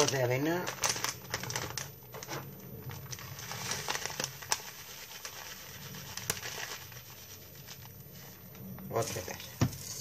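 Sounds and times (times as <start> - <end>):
oat flakes rustling: 2.9 - 10.0.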